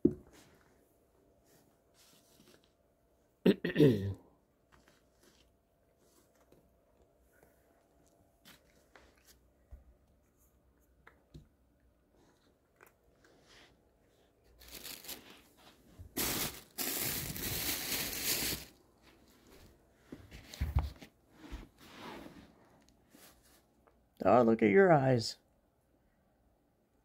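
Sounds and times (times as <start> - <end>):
loud crinkling rustle: 14.5 - 18.8.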